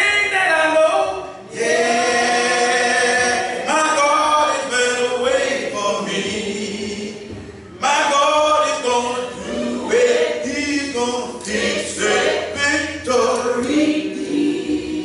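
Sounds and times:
man singing gospel song: 0.0 - 14.3.

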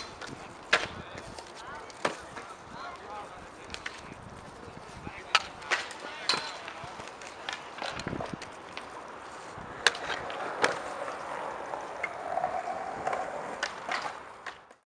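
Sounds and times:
scooter wheels rolling on concrete: 0.0 - 14.8
sharp scooter clacks: 5.2 - 8.9.

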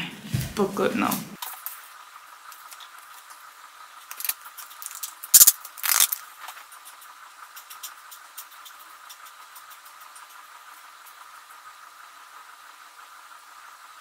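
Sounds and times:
pages rustling: 4.1 - 6.8
sharp paper crack: 4.1 - 6.8.

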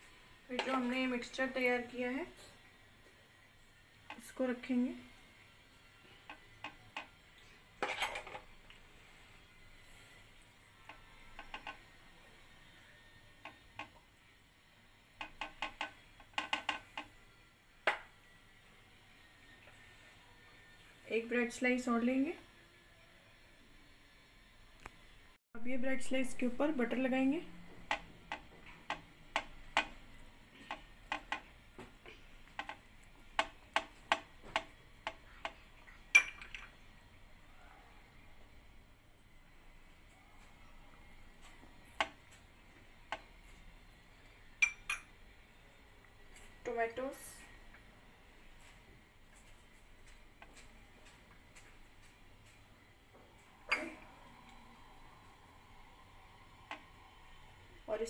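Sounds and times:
spoon clinking against dishes: 44.6 - 45.1.

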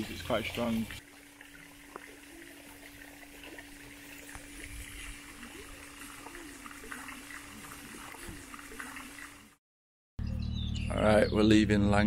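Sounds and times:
fountain water splashing: 0.0 - 9.6.

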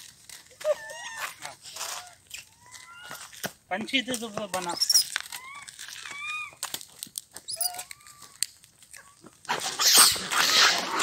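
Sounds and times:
animal whining calls: 4.8 - 6.6, 7.5 - 8.4.

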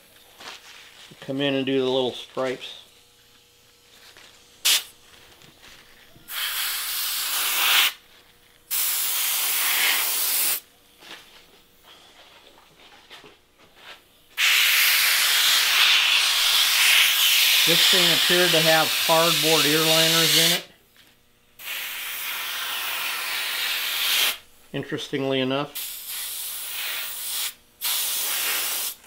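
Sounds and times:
airbrush hissing: 4.6 - 5.0, 6.2 - 8.0, 8.7 - 10.6, 14.4 - 20.7, 21.6 - 24.4, 25.7 - 29.0.

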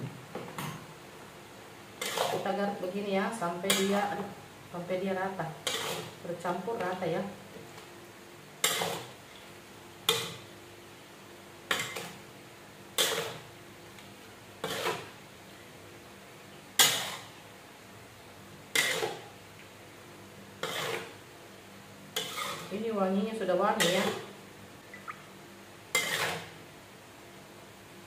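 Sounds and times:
metal spatula scraping a wok: 2.0 - 2.5, 5.6 - 6.2, 8.6 - 9.2, 13.0 - 13.5, 14.6 - 15.2, 16.8 - 17.4, 18.7 - 19.3, 20.6 - 21.2, 22.2 - 22.7, 23.8 - 24.3, 25.9 - 26.6.

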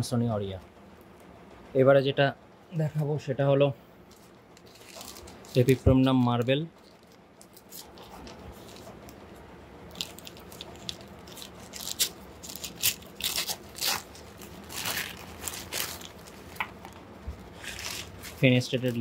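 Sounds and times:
newspaper crinkling and tearing: 4.1 - 9.2, 9.9 - 19.0.

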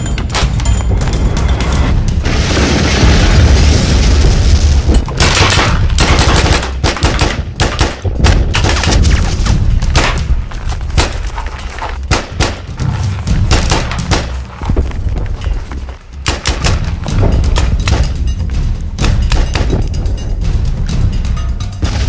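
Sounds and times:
loud rumbling blast: 1.0 - 6.4
gunshots: 2.3 - 11.4, 12.0 - 14.5, 16.2 - 18.2.

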